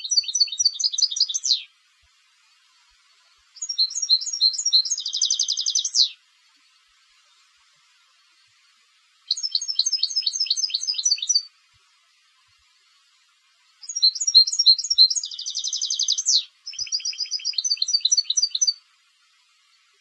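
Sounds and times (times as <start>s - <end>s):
goldfinch twittering and trilling: 0.0s - 1.7s, 2.5s - 6.6s, 9.3s - 11.5s, 13.7s - 18.8s.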